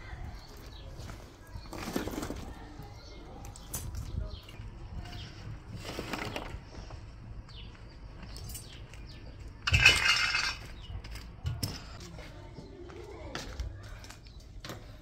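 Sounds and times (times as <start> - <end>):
coals rattling clatter: 8.4 - 12.0.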